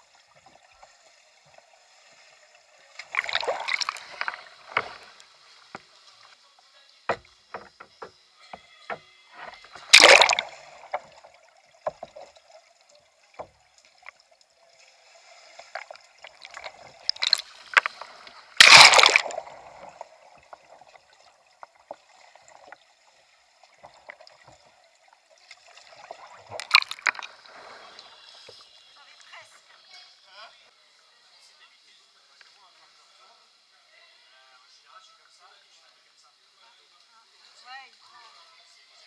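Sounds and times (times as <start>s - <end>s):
water dripping: 0.0s - 6.4s, 7.1s - 29.4s
water splashing around a kayak: 0.0s - 30.1s
small knocks: 7.1s - 9.8s.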